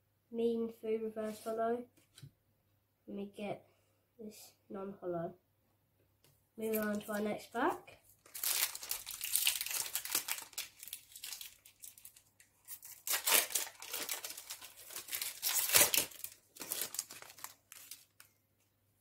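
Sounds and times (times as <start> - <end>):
cards rustling: 6.6 - 7.2, 8.2 - 18.3
foil wrapper crinkling and tearing: 8.2 - 18.3.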